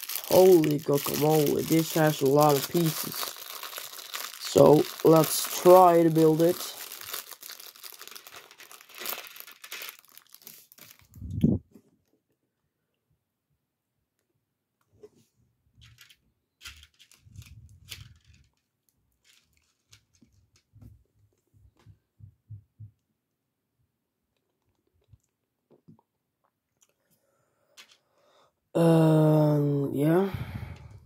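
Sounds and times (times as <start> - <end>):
plastic building bricks clicking: 15.8 - 20.7.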